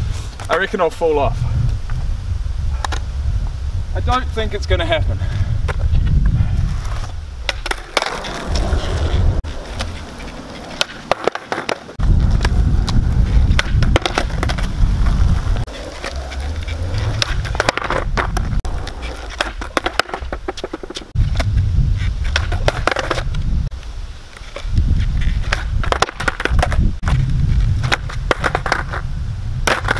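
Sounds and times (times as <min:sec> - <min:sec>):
skateboard wheels rolling on asphalt: 0:00.0 - 0:29.9
skateboard clacking on ground: 0:06.8 - 0:21.5, 0:22.2 - 0:23.4, 0:24.4 - 0:29.0, 0:29.6 - 0:29.9.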